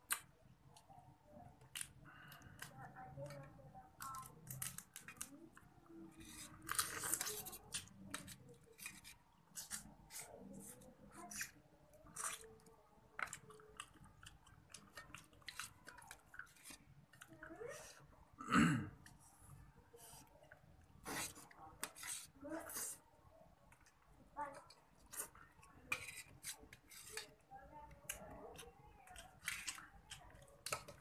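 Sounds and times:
chewing and lip smacks: 12.0s - 17.3s.

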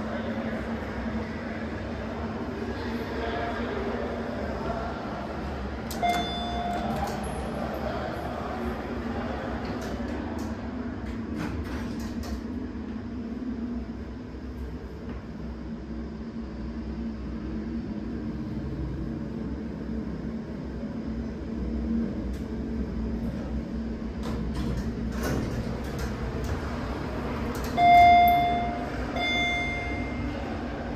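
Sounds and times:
elevator machinery humming: 0.0s - 30.9s
elevator arrival chime: 5.9s - 7.2s, 27.6s - 30.8s.

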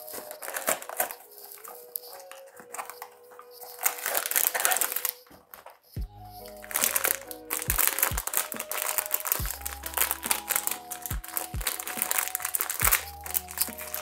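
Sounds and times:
foil bag crinkling: 0.0s - 14.0s
background music with beat: 5.9s - 14.0s.

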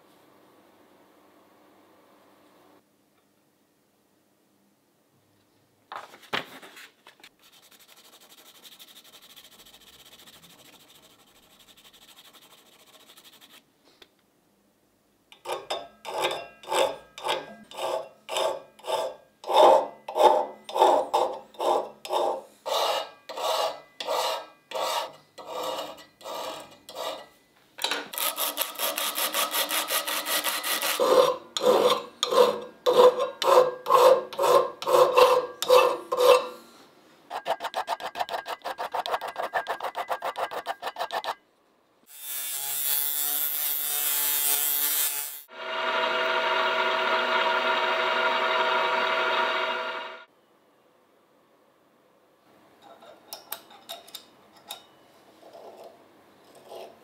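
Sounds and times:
pencil rubbing on paper: 7.4s - 13.6s
hand file rasping on steel: 16.7s - 27.3s, 28.2s - 36.6s, 37.3s - 41.4s.

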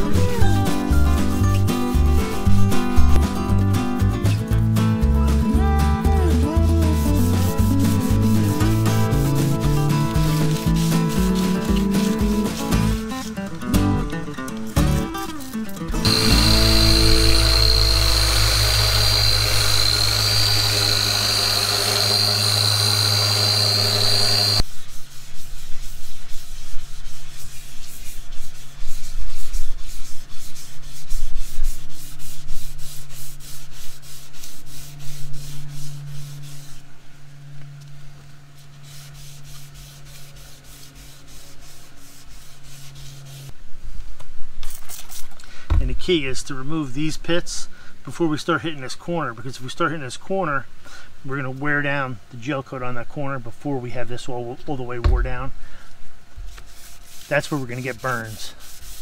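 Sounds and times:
sandpaper rubbed by hand: 0.0s - 3.6s, 4.2s - 13.4s, 15.2s - 36.9s, 38.5s - 43.6s, 56.4s - 59.0s
orbital sander running: 16.0s - 24.6s.

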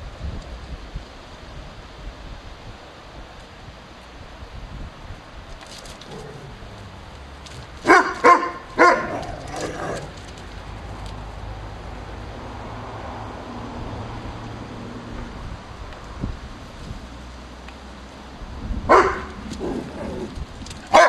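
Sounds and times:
dog barking: 7.8s - 10.1s, 18.9s - 20.2s.

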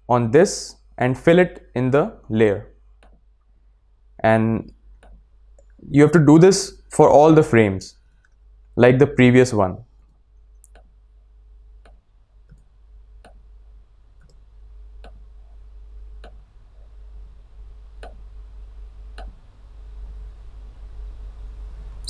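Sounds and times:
faint low hum: 0.0s - 22.0s
computer mouse clicking: 11.8s - 13.4s, 14.2s - 14.4s, 19.2s - 19.4s.

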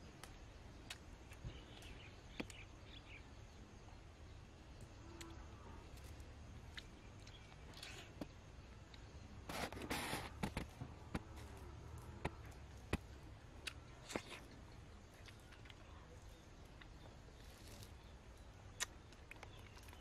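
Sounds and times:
wet chewing mouth clicks: 18.7s - 20.0s.

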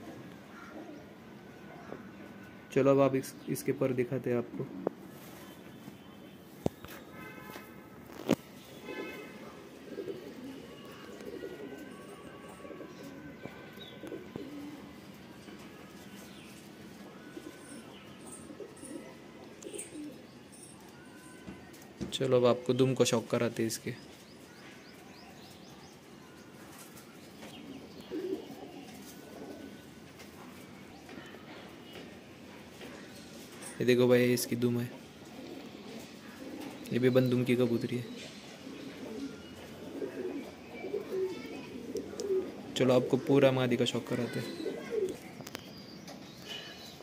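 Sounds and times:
pigeons cooing: 0.0s - 1.2s, 8.1s - 21.1s, 26.6s - 30.3s, 35.1s - 45.4s.

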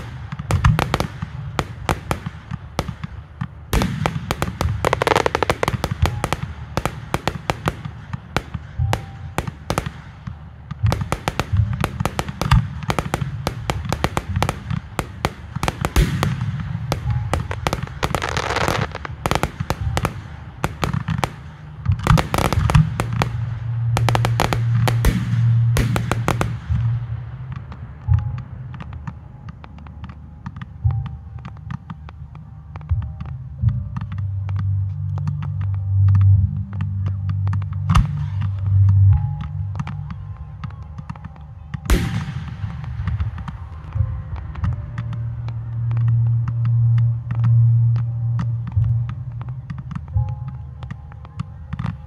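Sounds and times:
fireworks bursting: 0.0s - 30.7s, 37.9s - 47.6s.

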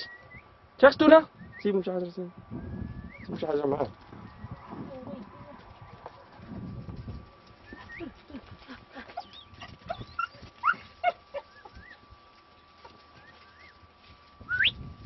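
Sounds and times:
dog whining and yelping: 9.2s - 12.0s.

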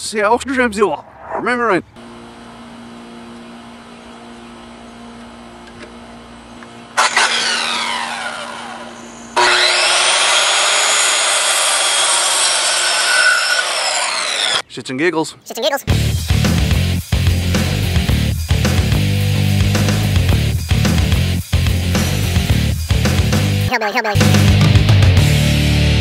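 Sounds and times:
circular saw cutting wood: 7.0s - 14.6s
circular saw winding down: 7.0s - 14.6s.

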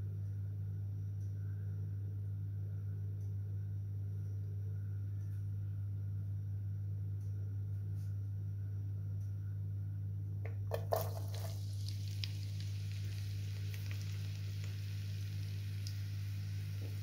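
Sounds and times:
steady low hum: 0.0s - 17.0s
knocks in frying pan: 10.5s - 11.6s
onions sizzling in oil: 10.7s - 17.0s.

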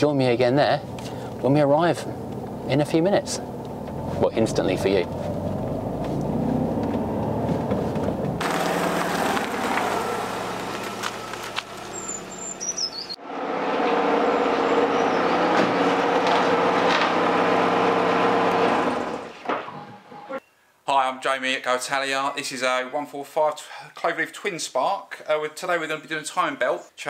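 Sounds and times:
outdoor background noise: 0.0s - 23.5s
car engine from inside cabin: 3.4s - 19.3s.

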